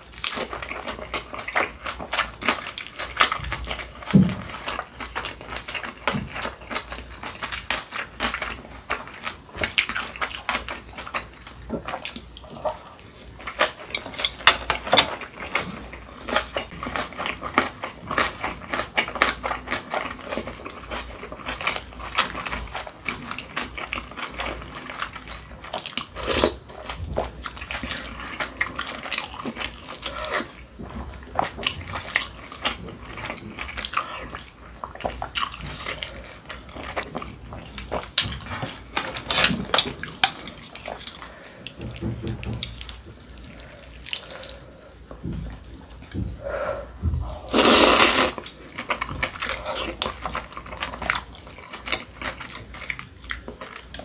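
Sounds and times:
person slurping noodles: 47.2 - 48.5.

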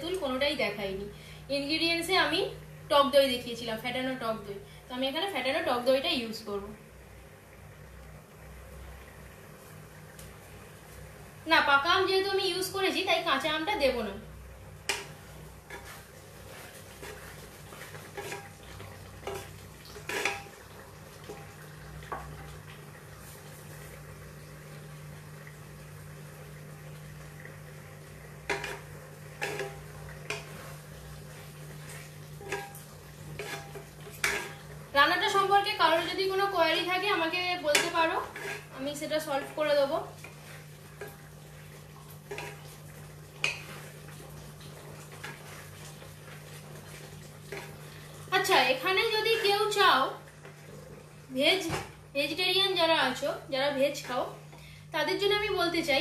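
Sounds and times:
utensils clinking on cookware: 32.4 - 32.8, 33.4 - 34.6.

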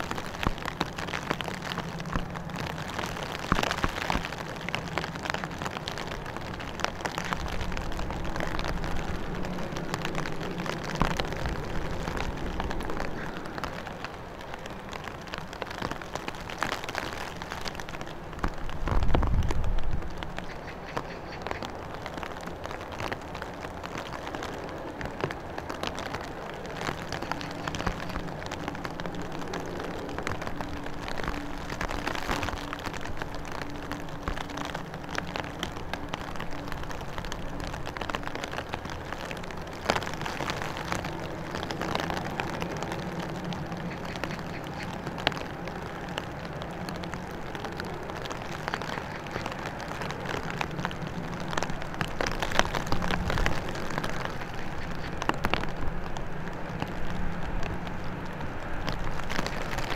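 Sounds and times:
gusty wind: 0.0 - 59.9
rain pattering on microphone: 0.0 - 59.9
turboprop engines humming: 0.0 - 59.9.

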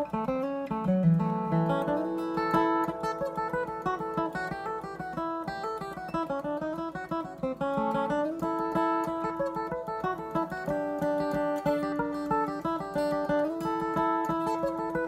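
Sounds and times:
acoustic guitar picked notes: 0.0 - 15.0.

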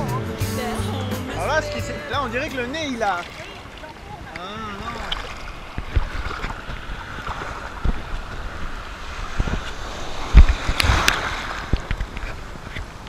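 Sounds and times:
ocean surf sloshing: 0.0 - 13.0
water splash: 2.4 - 12.8
water thumping against camera: 5.0 - 8.2.

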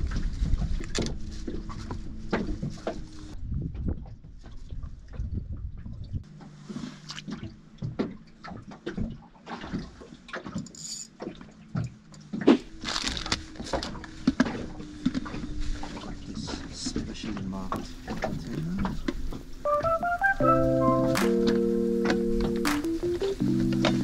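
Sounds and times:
water sloshing against boat: 0.0 - 24.0.

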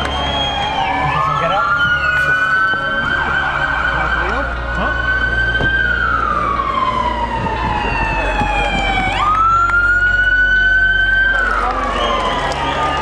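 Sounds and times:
low vehicle rumble: 0.0 - 13.0
police siren wailing: 0.0 - 13.0.

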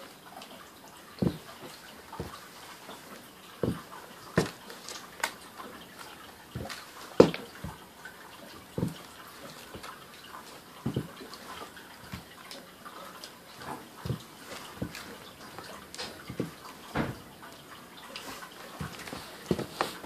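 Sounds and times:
sneakers stepping on wooden floor: 1.2 - 4.7, 6.5 - 7.9, 8.6 - 12.4, 13.6 - 17.3, 18.7 - 20.0.

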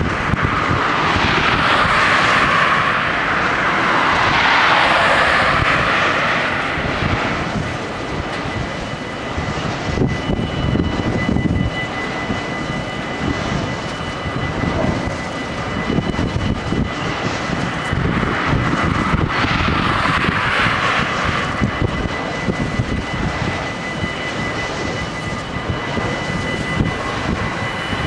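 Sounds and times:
crossing warning bells ringing: 7.6 - 19.2, 21.3 - 28.0.

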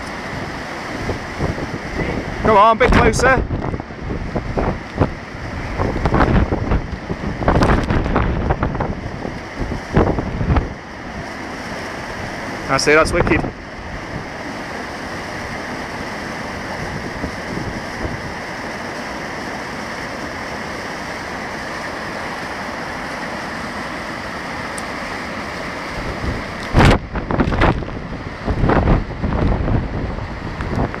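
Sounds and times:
wind buffeting microphone: 0.0 - 11.2, 15.4 - 18.4, 25.8 - 31.0
waterfall rushing: 0.0 - 31.0.

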